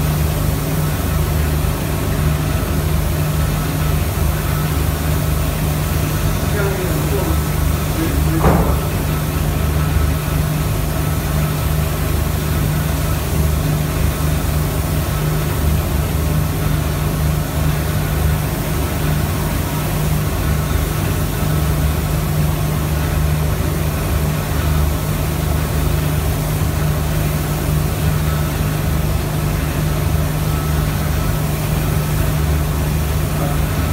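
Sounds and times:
machine motor humming: 6.2s - 9.8s.

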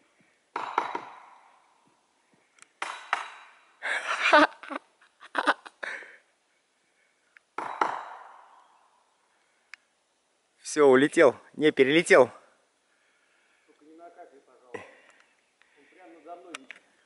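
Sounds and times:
woodpecker drumming: 0.5s - 3.9s, 7.2s - 9.9s.

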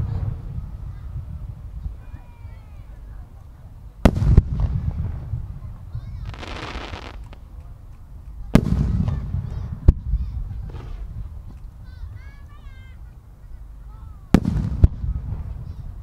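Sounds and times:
firework hissing: 6.2s - 7.5s
firework shells bursting: 6.2s - 8.0s.

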